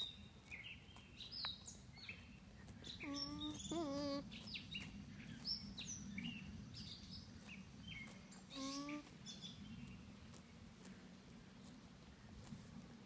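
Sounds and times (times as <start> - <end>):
birds chirping: 0.0 - 10.6
alpaca humming: 2.8 - 4.5, 8.5 - 9.2.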